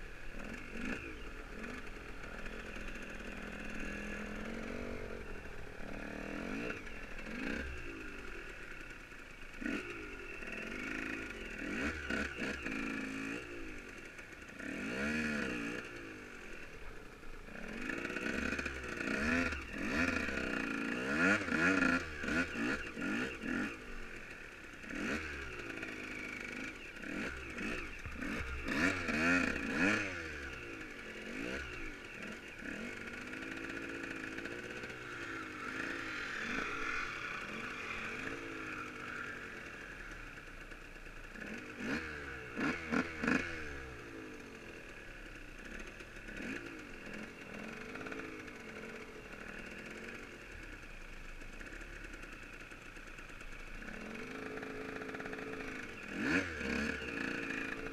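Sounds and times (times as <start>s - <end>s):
motorcycle engines revving: 0.0s - 57.9s.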